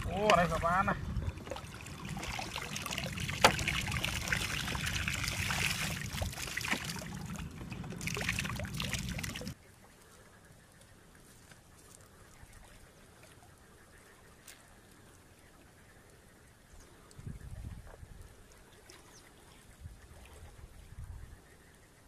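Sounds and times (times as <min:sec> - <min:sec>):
water splashing and trickling: 0:00.0 - 0:10.1, 0:11.2 - 0:21.4
low rumble: 0:01.0 - 0:09.6.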